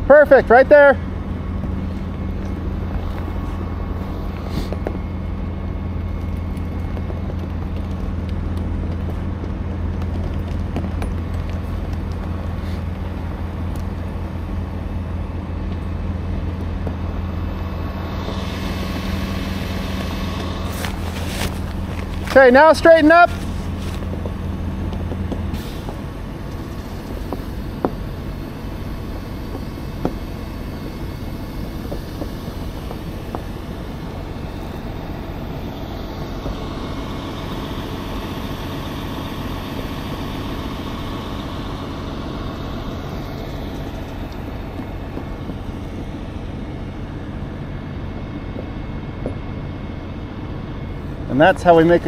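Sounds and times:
diesel truck engines running: 0.0s - 52.0s.

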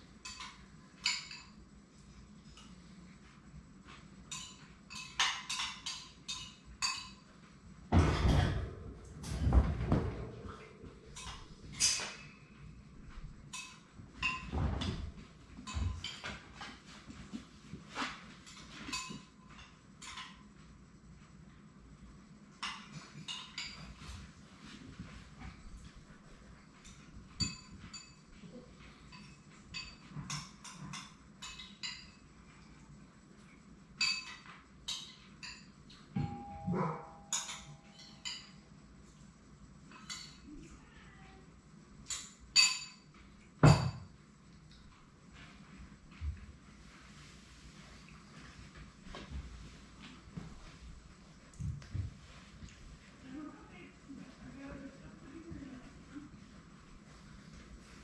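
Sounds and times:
light metallic clinks: 33.5s - 40.7s.

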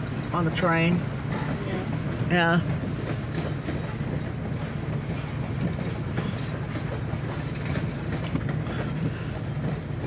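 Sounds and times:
train coaches rumbling over rails: 0.0s - 10.0s
wheels clicking: 1.2s - 10.0s.

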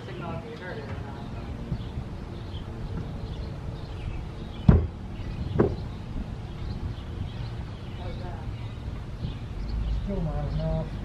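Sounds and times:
steady low rumble: 0.0s - 11.0s
sharp knocks: 4.6s - 5.8s.

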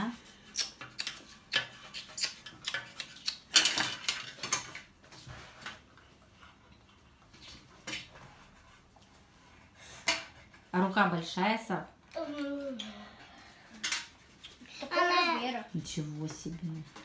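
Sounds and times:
pencils tapping on paper: 0.2s - 4.9s, 9.9s - 10.7s, 13.7s - 17.0s.

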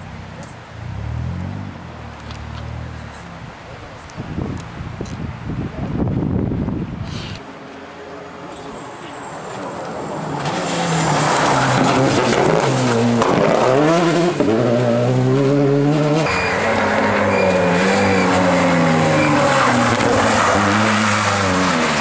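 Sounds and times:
rally car accelerating: 9.9s - 22.0s
rally car engine revving past: 10.3s - 22.0s.

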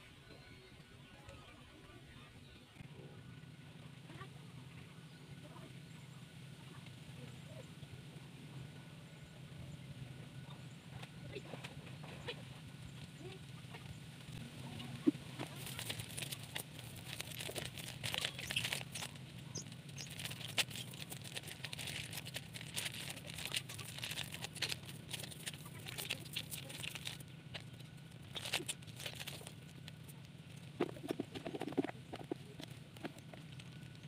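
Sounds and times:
nylon net rustling: 15.0s - 31.8s
snail shells clicking together: 15.4s - 34.0s.

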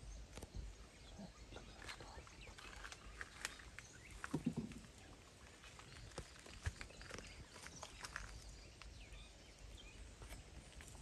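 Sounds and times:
twigs snapping and rustling: 1.8s - 9.0s.

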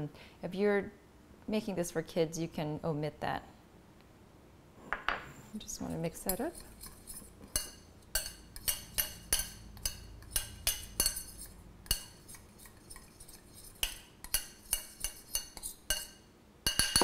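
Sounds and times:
utensil clinking in glass bowl: 6.3s - 17.0s.

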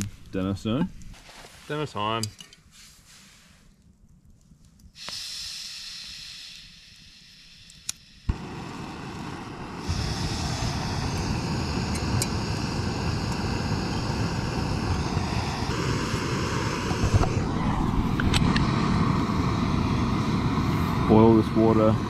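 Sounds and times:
gas hissing: 4.9s - 22.0s
gas burner rushing: 5.0s - 22.0s.

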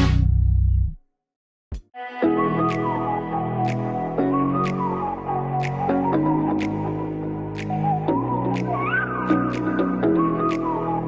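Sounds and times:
background music with chords: 2.2s - 11.0s.

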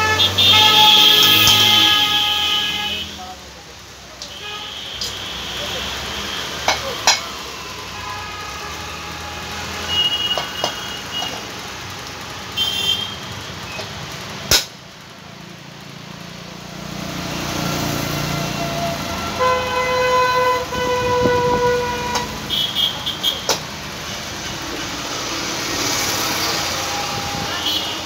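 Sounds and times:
vehicle horns honking: 0.0s - 3.2s, 4.2s - 13.8s, 18.4s - 23.6s, 26.4s - 28.0s
passing traffic: 0.0s - 28.0s.

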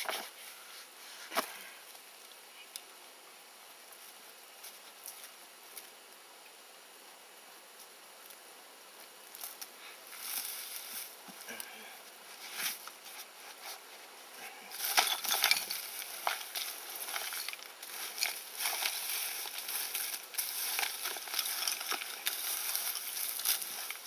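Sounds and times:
hands scratching dry soil: 9.3s - 24.0s.

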